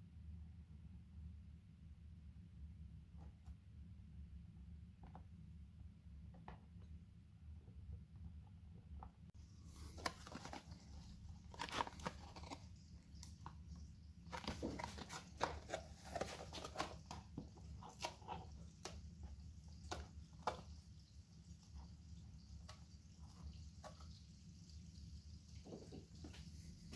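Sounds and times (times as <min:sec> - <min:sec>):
faint low hum: 0:00.0 - 0:26.9
cardboard box and paper rustling: 0:09.7 - 0:13.4, 0:14.3 - 0:18.9.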